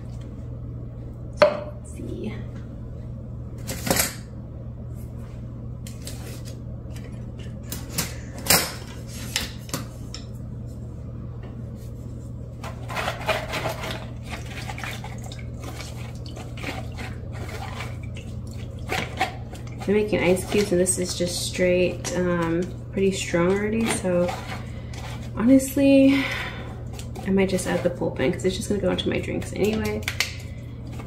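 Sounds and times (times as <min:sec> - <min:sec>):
steady low hum: 0:00.0 - 0:31.0
spoon scraping puree through strainer: 0:12.8 - 0:22.7, 0:23.3 - 0:25.6, 0:26.8 - 0:29.0.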